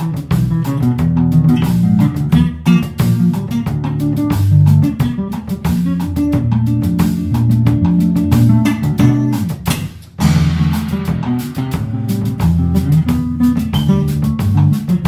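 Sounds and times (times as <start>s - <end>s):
drum kit: 0.0s - 15.0s
electric bass guitar: 0.0s - 15.0s.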